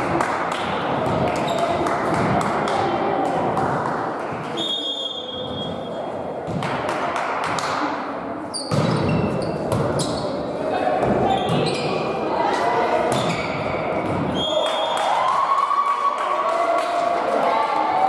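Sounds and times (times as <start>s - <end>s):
volleyball hits: 0.0s - 2.8s, 8.7s - 10.1s, 13.1s - 15.2s
hum of sports hall: 0.0s - 18.0s
players' voices: 0.0s - 18.0s
referee's whistle: 4.6s - 5.8s.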